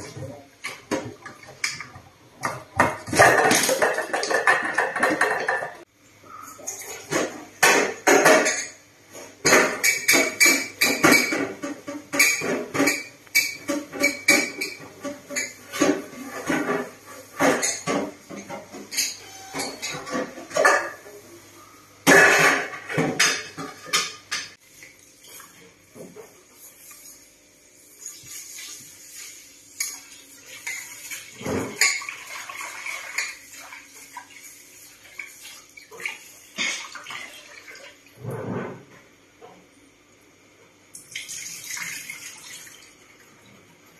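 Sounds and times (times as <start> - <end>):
dishes and cutlery clattering in sink: 0.0 - 21.3, 22.0 - 24.6, 25.3 - 27.0, 28.0 - 39.7
tap water running and splashing: 28.0 - 38.2, 40.9 - 43.8.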